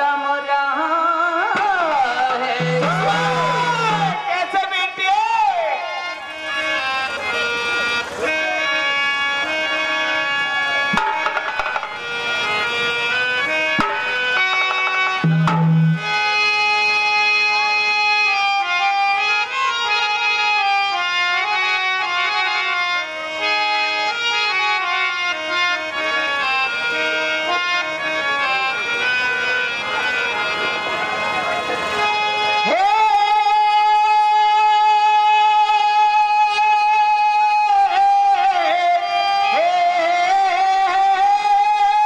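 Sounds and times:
harmonium melody: 0.0s - 42.0s
hand drum strokes: 10.9s - 12.1s, 13.8s - 16.1s
loud deep drum beat: 15.2s - 16.0s.

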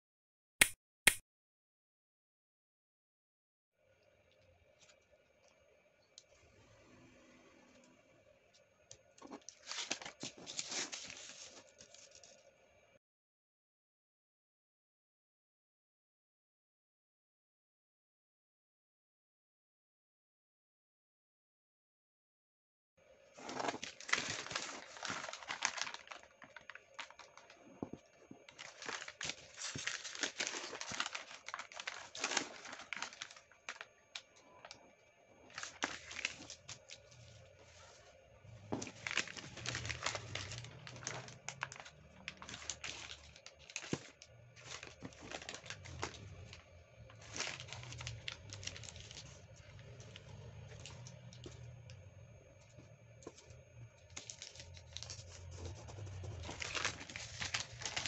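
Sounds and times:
paper crackling and rustling: 9.2s - 12.4s, 23.3s - 34.8s, 35.5s - 51.6s, 53.3s - 58.0s.

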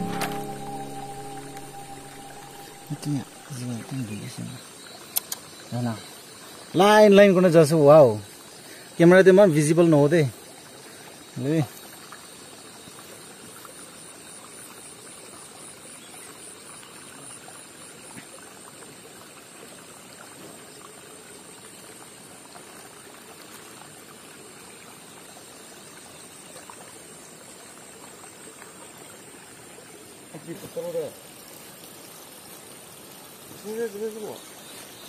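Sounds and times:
steady high hiss: 0.0s - 4.6s
water trickling and sloshing: 10.2s - 35.0s.

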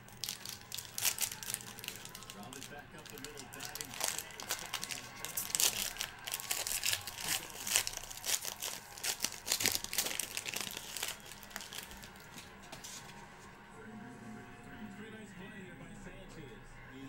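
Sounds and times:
wrapper tearing and crinkling: 0.0s - 12.5s.

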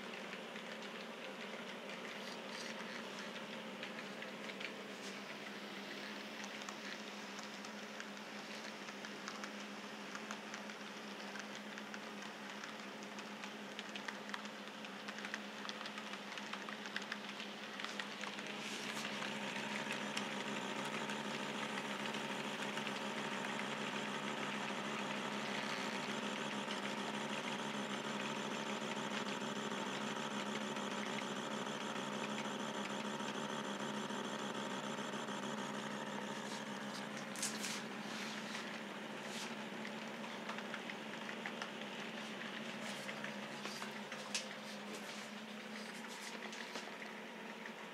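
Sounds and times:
model train motor hum: 15.1s - 47.2s.

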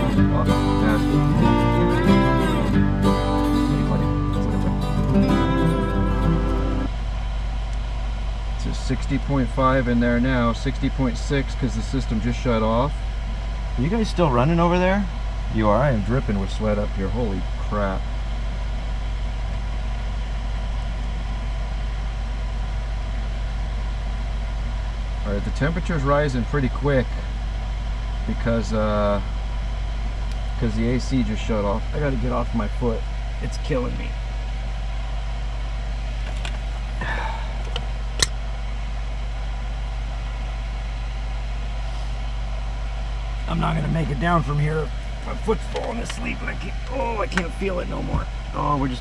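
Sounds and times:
duct fan humming: 0.0s - 49.0s
sharp click: 37.7s - 38.4s.

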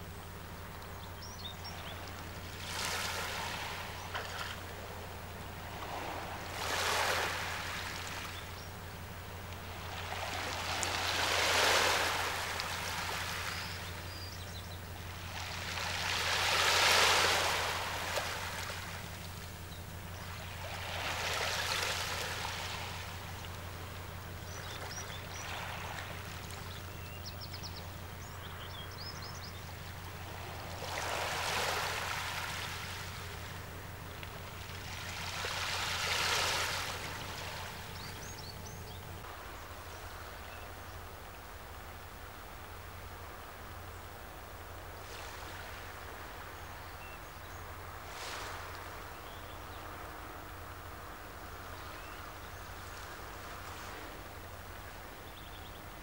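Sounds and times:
small waves washing in: 2.0s - 14.0s, 15.0s - 28.2s, 29.7s - 39.2s, 44.9s - 46.8s, 47.8s - 49.2s.

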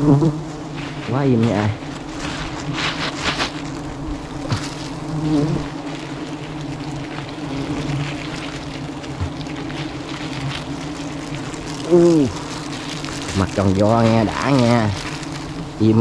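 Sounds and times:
honeybees buzzing: 0.0s - 16.0s
rustling and scraping: 0.4s - 16.0s.

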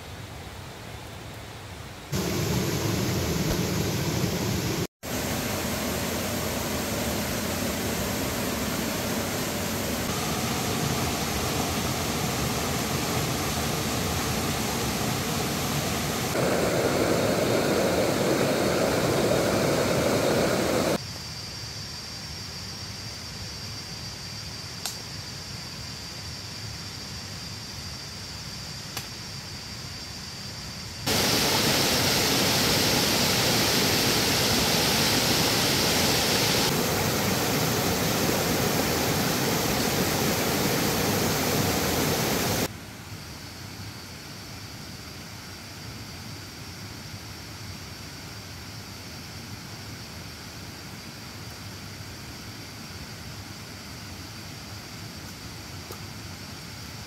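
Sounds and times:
stream rushing over rocks: 5.1s - 21.0s, 31.1s - 42.7s.

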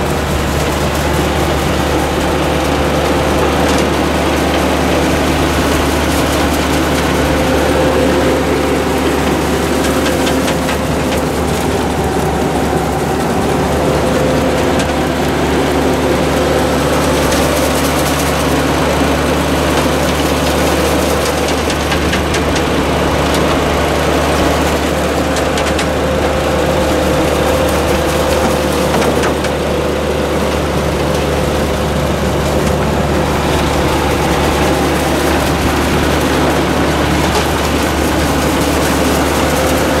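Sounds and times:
harvester machinery rattling: 0.0s - 40.0s
tractor engine drone: 0.0s - 40.0s.

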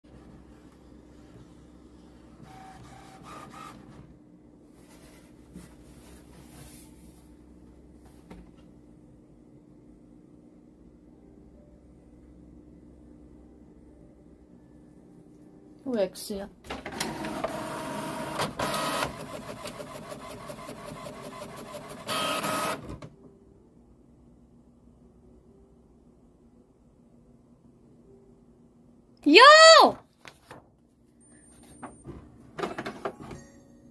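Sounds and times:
printer mechanism whirring: 2.4s - 4.1s, 16.7s - 23.1s
short printer tones: 16.9s - 23.0s.

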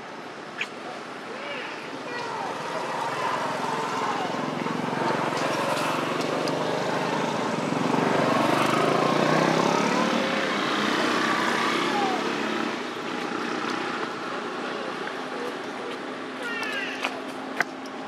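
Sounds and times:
motorbike engine passing by: 2.5s - 13.7s.

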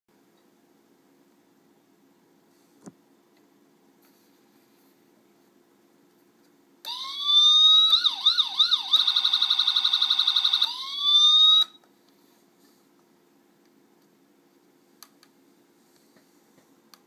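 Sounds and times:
toy police siren: 6.9s - 11.8s.

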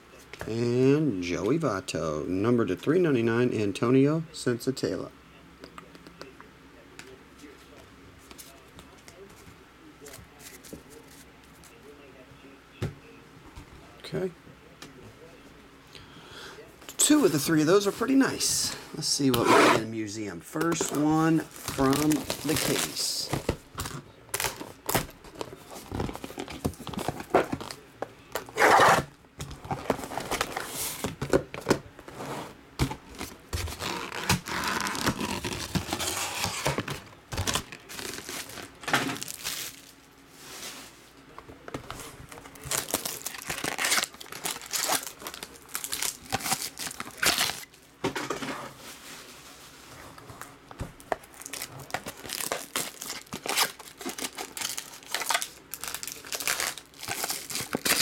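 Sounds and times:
plastic wrap crinkling and tearing: 20.8s - 27.8s, 33.2s - 40.0s, 42.4s - 47.8s, 51.0s - 58.0s.

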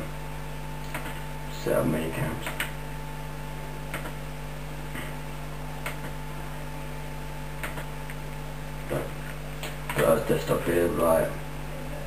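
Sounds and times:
steady electrical hum: 0.0s - 12.0s
laptop controls clicking: 3.9s - 4.2s, 7.6s - 8.2s.

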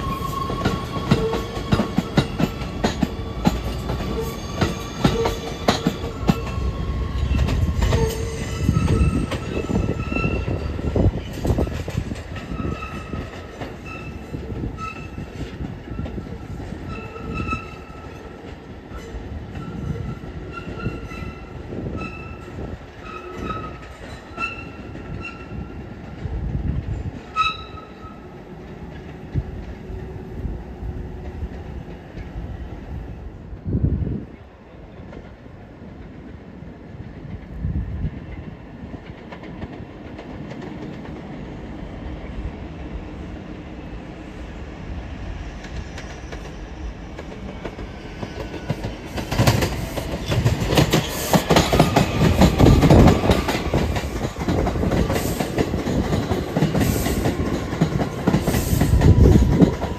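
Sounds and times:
train whine: 0.0s - 59.9s
train wheel clicks: 45.6s - 59.9s.

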